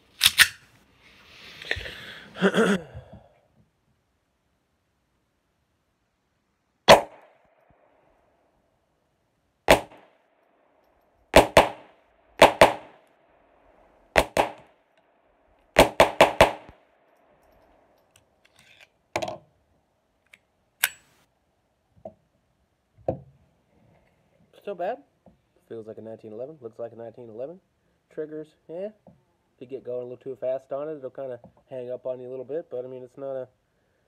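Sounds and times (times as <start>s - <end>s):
metallic clacks of pistol handling: 0.1s - 0.7s, 17.1s - 19.4s, 20.2s - 21.2s
pistol shots with ringing echo: 6.9s - 7.3s, 9.7s - 10.1s, 11.4s - 13.0s, 14.2s - 14.6s, 15.8s - 16.8s.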